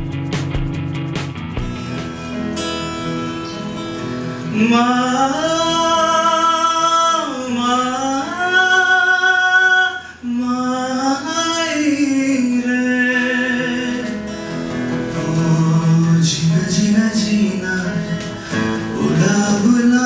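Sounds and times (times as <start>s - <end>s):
acoustic guitar: 0.0s - 20.0s
man singing: 4.4s - 14.4s, 15.0s - 20.0s.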